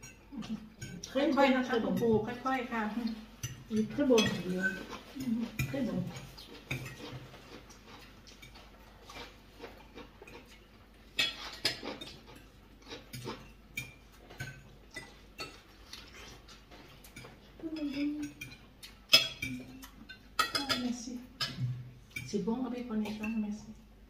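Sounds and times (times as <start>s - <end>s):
cutlery clinking on china plates: 3.4s - 5.0s, 11.1s - 15.7s, 17.1s - 22.3s.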